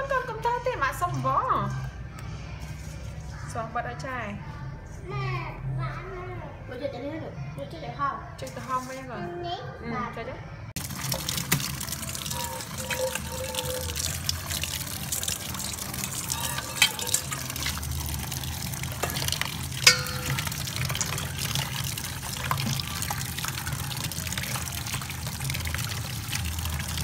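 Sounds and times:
tap water running into bowl: 0:10.8 - 0:27.0
sharp knocks against metal bowl: 0:19.9 - 0:21.2.

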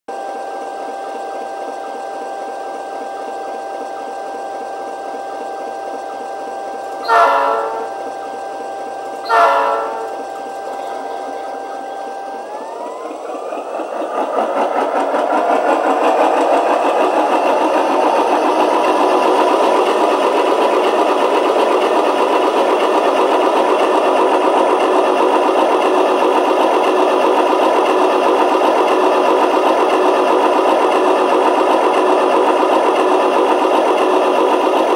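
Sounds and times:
diesel engine sound through small speaker: 0:00.1 - 0:34.9
train horn blasts: 0:07.0 - 0:08.0, 0:09.2 - 0:10.2.

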